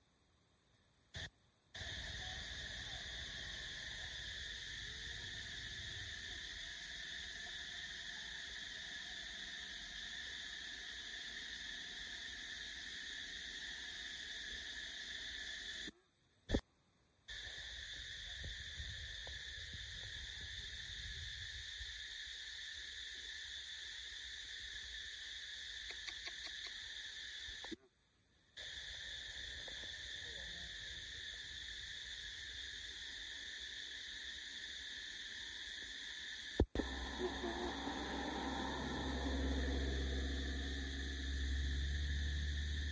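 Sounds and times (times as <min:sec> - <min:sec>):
insect chorus: 0:00.0 - 0:42.9
sharp click: 0:25.9 - 0:26.8.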